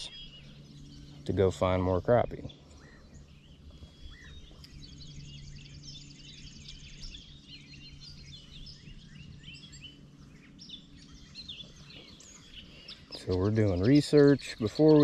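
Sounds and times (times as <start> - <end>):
faint steady low hum: 0.0 - 15.0
low rumbling noise: 0.0 - 15.0
rapid high bird trill: 0.0 - 15.0
songbirds chirping and singing: 0.0 - 15.0.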